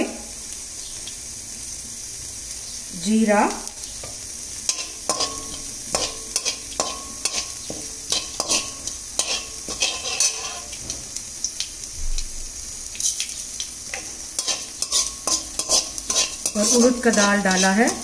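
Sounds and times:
seeds sizzling in hot oil: 0:00.0 - 0:18.0
spatula scraping metal pan: 0:04.7 - 0:11.0, 0:14.0 - 0:18.0.

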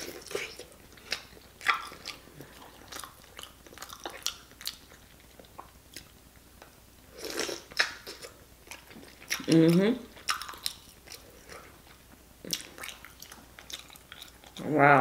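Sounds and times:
wet chewing and lip-smacking: 0:00.0 - 0:06.7, 0:07.4 - 0:14.6.

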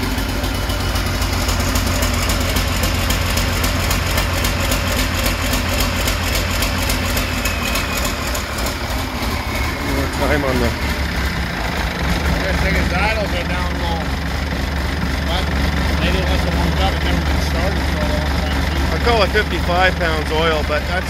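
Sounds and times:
diesel engine idling: 0:00.0 - 0:21.0.

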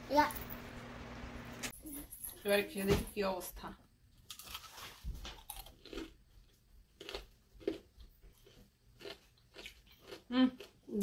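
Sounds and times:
crunchy chewing of fried chicken: 0:04.2 - 0:11.0.

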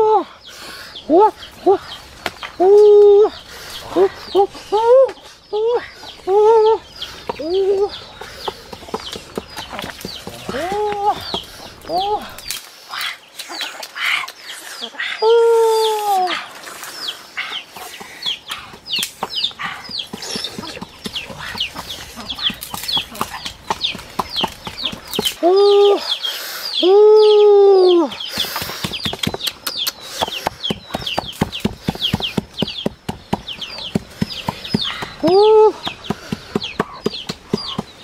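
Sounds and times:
chicks peeping: 0:03.3 - 0:12.6, 0:17.0 - 0:38.0.

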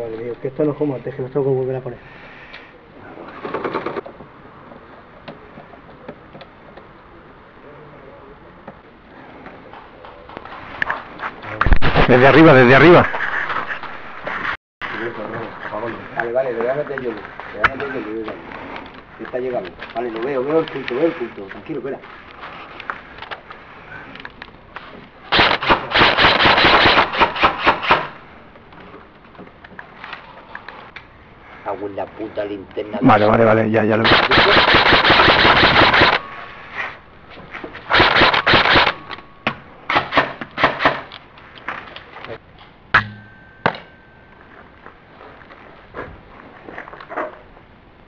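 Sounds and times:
airsoft rifle shots: 0:11.7 - 0:12.6, 0:25.3 - 0:28.2, 0:34.0 - 0:36.4, 0:37.9 - 0:39.2, 0:39.9 - 0:41.1.

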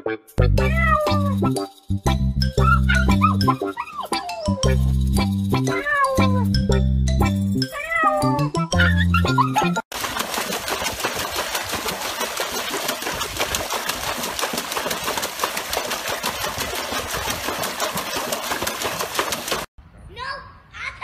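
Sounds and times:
dog splashing in water: 0:09.9 - 0:19.7.

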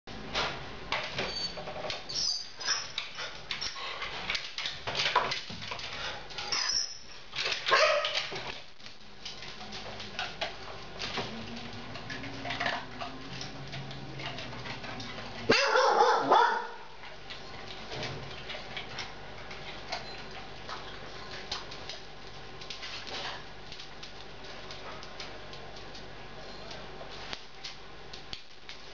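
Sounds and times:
dog claws clicking on tiles: 0:00.9 - 0:15.5, 0:17.0 - 0:26.1
dog barking: 0:07.7 - 0:08.2, 0:15.5 - 0:16.9.

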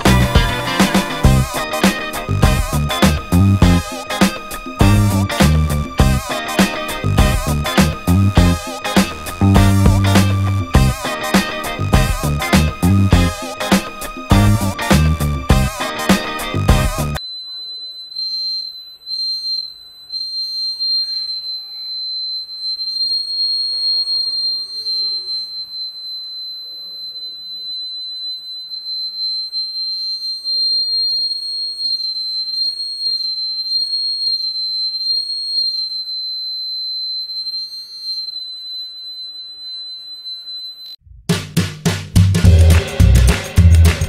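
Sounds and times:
high-pitched buzzer beep: 0:00.0 - 0:41.0
low tone rising and falling: 0:04.8 - 0:06.3, 0:07.0 - 0:08.7, 0:09.3 - 0:11.1.

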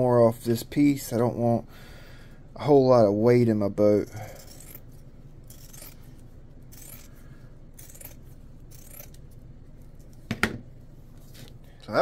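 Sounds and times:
shears snipping cloth: 0:04.4 - 0:07.2, 0:07.8 - 0:10.2.

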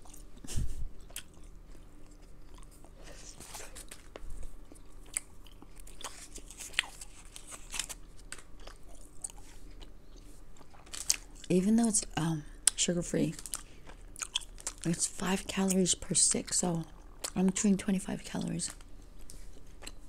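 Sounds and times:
gum chewing close up: 0:01.0 - 0:03.0, 0:03.7 - 0:11.5, 0:13.4 - 0:14.9.

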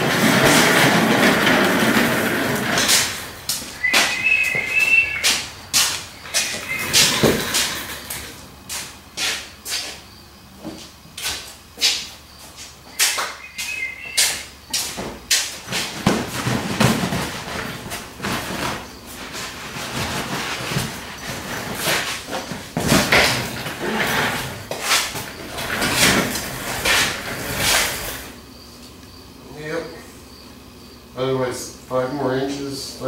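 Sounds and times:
chair creaking: 0:00.0 - 0:08.4, 0:15.7 - 0:28.3
knocks and scrapes: 0:00.0 - 0:10.0, 0:10.6 - 0:28.4.

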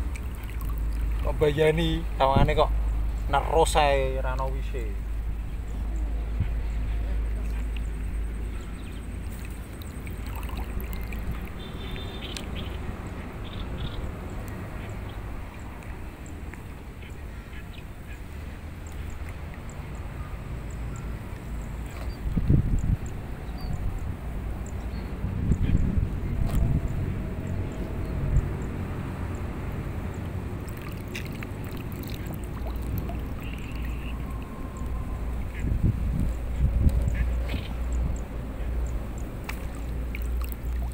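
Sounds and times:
water sloshing and gurgling: 0:00.0 - 0:03.3, 0:05.0 - 0:13.4, 0:30.2 - 0:40.9
wind rumble on microphone: 0:00.0 - 0:03.4, 0:21.8 - 0:30.7, 0:31.3 - 0:40.9.

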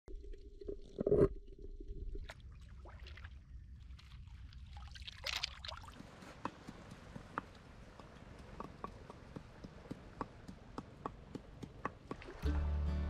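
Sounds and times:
seawater sloshing and splashing: 0:02.2 - 0:12.5.

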